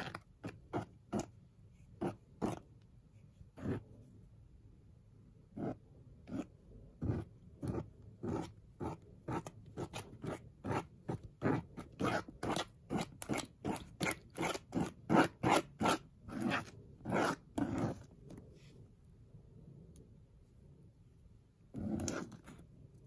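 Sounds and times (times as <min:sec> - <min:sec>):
spatula scraping slime on plastic: 0:00.0 - 0:02.8, 0:03.4 - 0:04.0, 0:05.5 - 0:18.6, 0:21.7 - 0:22.7.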